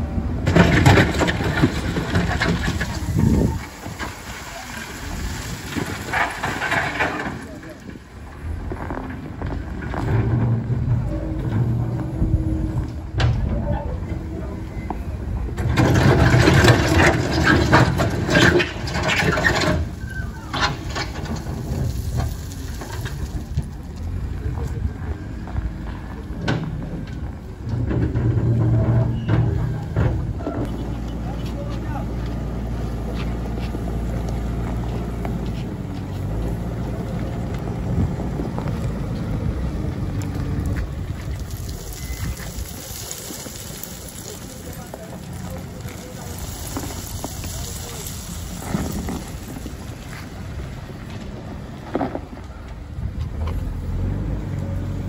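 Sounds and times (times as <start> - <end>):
diesel engine rumbling: 0.0 - 55.0
bucket scraping gravel: 0.5 - 8.0, 15.6 - 23.8, 40.6 - 52.4.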